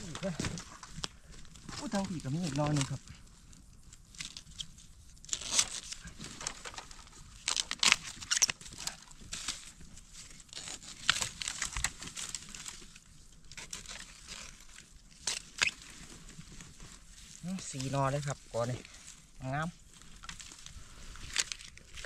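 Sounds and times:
dry leaves crackling and rustling: 0.0s - 22.0s.

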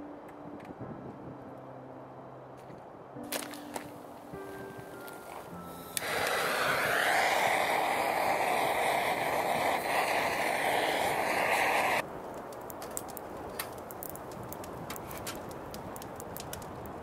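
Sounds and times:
butane torch jet hiss: 5.3s - 12.0s.

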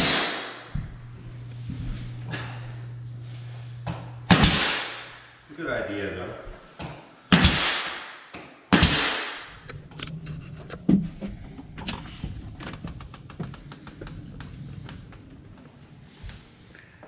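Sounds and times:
nail gun bang and air hiss: 4.3s - 5.1s, 7.3s - 9.5s.

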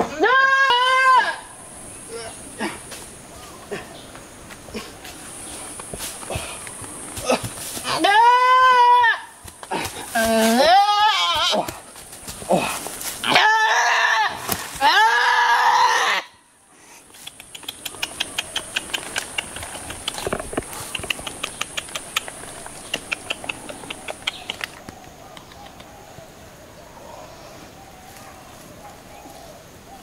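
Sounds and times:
goat bleating: 0.0s - 1.4s, 7.8s - 9.4s, 10.5s - 11.6s
faint irregular clicks: 17.1s - 25.9s.

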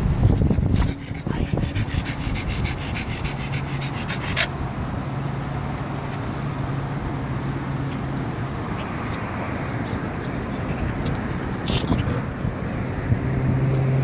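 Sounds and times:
dog snuffling and snorting: 8.6s - 12.4s.

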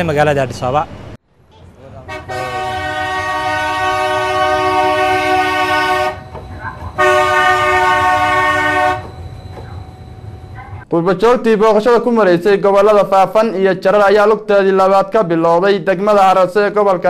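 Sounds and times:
tram horn blasts: 1.6s - 10.8s.

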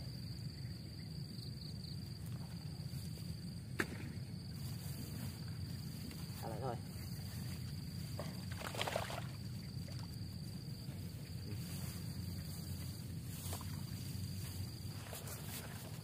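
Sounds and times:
high insect drone: 0.0s - 16.0s
low outdoor rumble: 9.3s - 16.0s.

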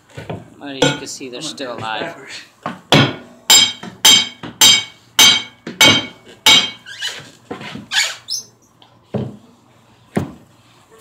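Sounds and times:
hammer blows ringing: 0.8s - 2.0s, 2.9s - 6.9s.

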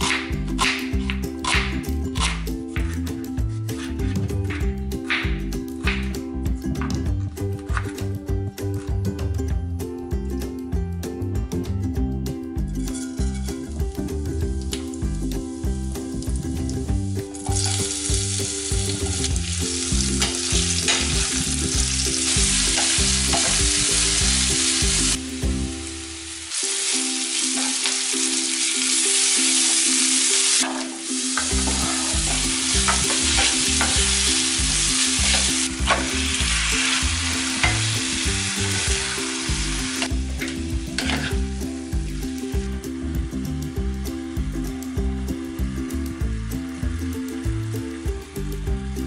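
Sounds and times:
food sizzling in hot oil: 0.0s - 2.6s, 12.8s - 48.6s
background music: 0.0s - 49.0s
spatula stirring in wok: 22.2s - 23.7s, 40.0s - 41.6s.

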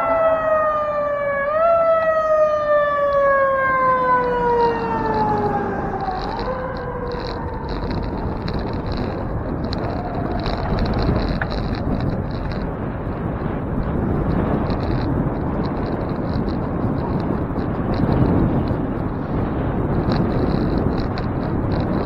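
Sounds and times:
fire engine siren wailing: 0.0s - 12.8s
road noise: 0.0s - 22.0s
wind: 0.0s - 22.0s.

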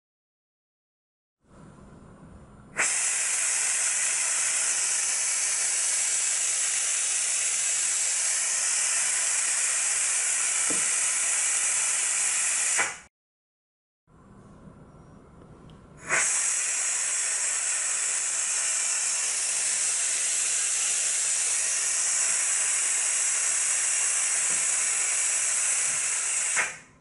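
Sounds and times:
vacuum ejector hissing: 16.0s - 26.8s.

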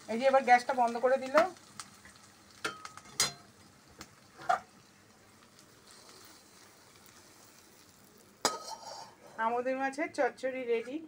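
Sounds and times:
faint sizzling in a pan: 0.0s - 11.0s
spatula scraping a pan: 8.4s - 9.5s.

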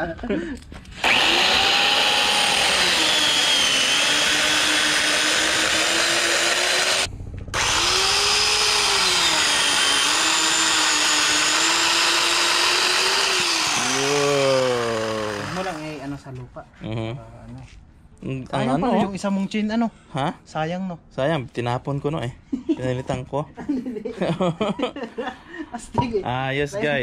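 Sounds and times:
electric chainsaw cutting log: 0.9s - 16.2s.

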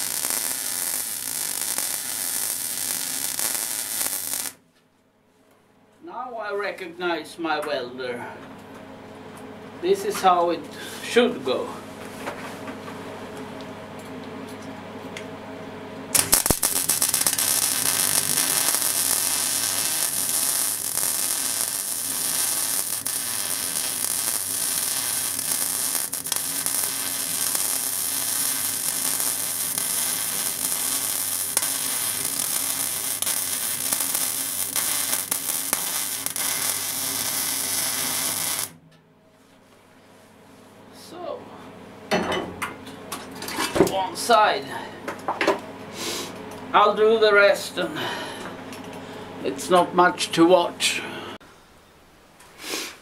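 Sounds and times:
welder hum: 0.0s - 4.6s, 16.1s - 38.8s
welding arc crackle and hiss: 0.0s - 4.6s, 16.1s - 38.8s.

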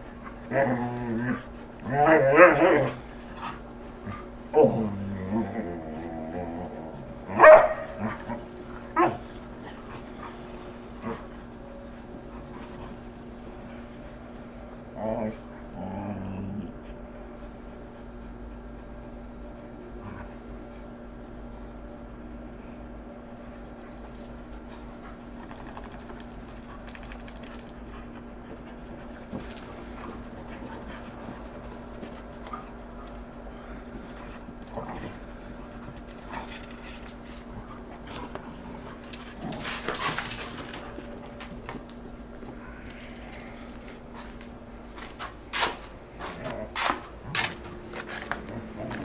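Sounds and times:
dogs panting and scuffling: 0.0s - 49.0s
steady low hum: 0.0s - 49.0s
dogs barking: 7.3s - 8.4s.

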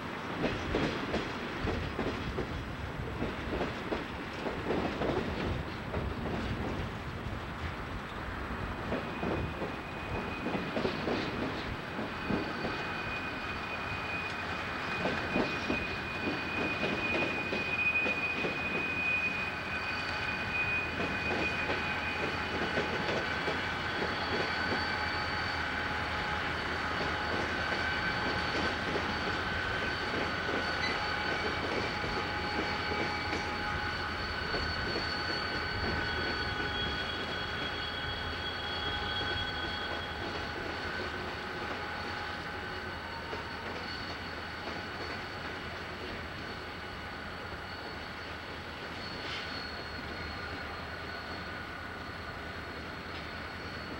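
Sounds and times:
train wheels clacking over rail joints: 0.3s - 6.9s, 8.8s - 12.9s, 14.3s - 19.0s, 20.9s - 25.1s
high-pitched wheel squeal: 8.9s - 53.9s.

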